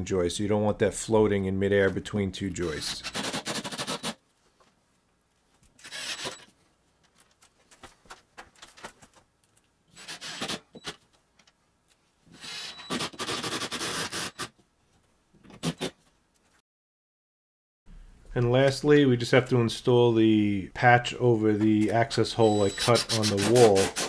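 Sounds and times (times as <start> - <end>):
cordless driver running screws: 5.8 - 6.4, 10.0 - 11.0, 12.4 - 14.5.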